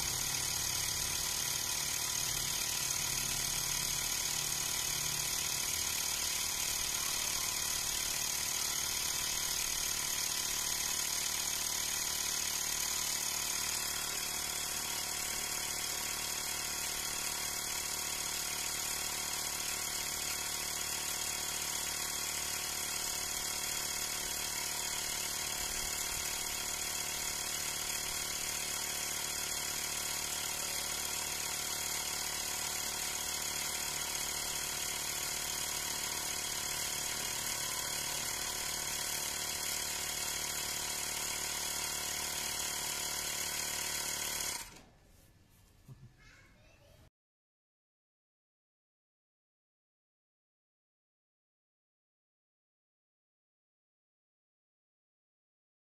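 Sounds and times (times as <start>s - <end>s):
electric air compressor running: 0.0s - 44.9s.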